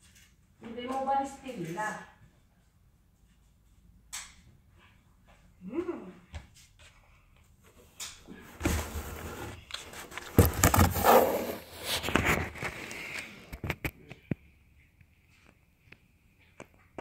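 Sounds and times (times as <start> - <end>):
phone scraping in cardboard box: 8.6 - 13.1.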